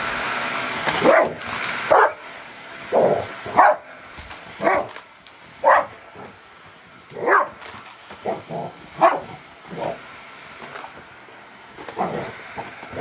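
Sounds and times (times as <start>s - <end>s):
large dog barking: 1.0s - 2.2s, 2.9s - 3.9s, 4.6s - 4.9s, 5.6s - 6.3s, 7.1s - 7.6s, 8.2s - 10.0s.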